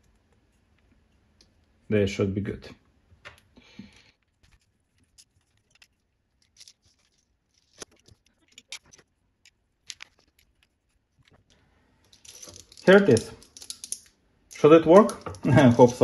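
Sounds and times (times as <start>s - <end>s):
bracket and cable handling: 3.2s - 16.0s
screwdriver clicks and scrapes: 4.2s - 11.4s.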